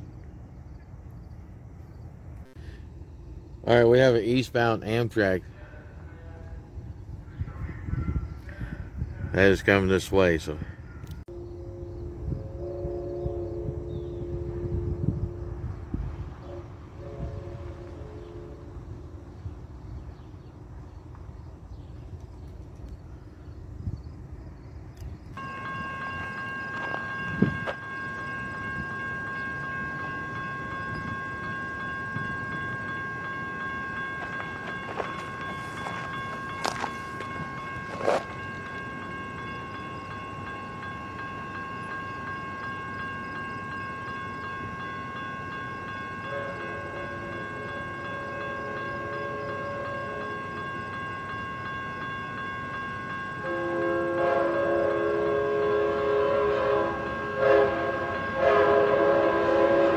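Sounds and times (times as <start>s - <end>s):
crossing warning bell ringing: 2.3s - 22.1s, 22.8s - 59.9s
train horn: 11.3s - 19.1s, 46.2s - 50.7s, 53.4s - 59.9s.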